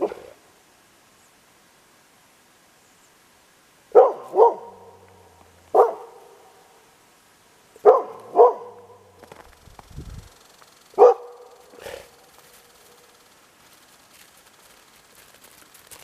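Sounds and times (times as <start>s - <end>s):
dog barking: 0.0s - 0.4s, 3.9s - 5.0s, 5.7s - 6.6s, 7.8s - 9.1s, 11.0s - 12.2s.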